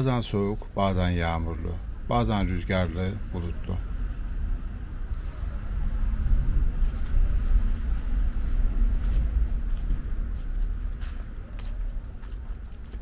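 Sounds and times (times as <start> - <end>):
low rumble: 0.0 - 13.0
footsteps walking: 5.1 - 13.0.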